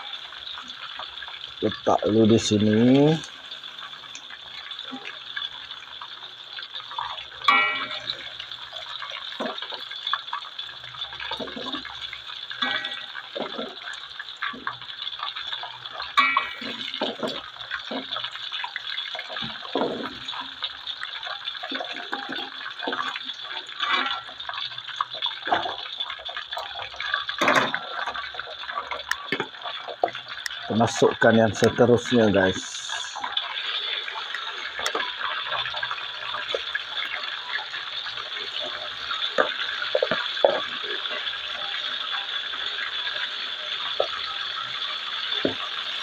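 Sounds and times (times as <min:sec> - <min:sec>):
chicken sizzling in hot oil: 0:00.0 - 0:46.0.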